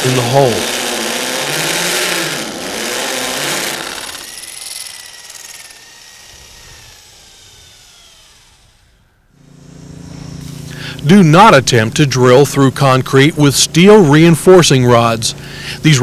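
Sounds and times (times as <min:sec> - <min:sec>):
hammer drill into concrete: 0:00.0 - 0:09.0
motor winding down whine: 0:00.0 - 0:12.5.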